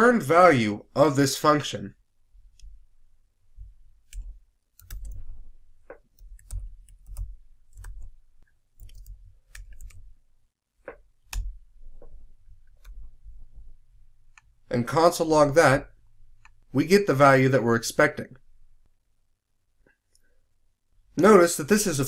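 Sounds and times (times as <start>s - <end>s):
computer keyboard typing: 3.6s - 8.2s, 8.8s - 10.1s.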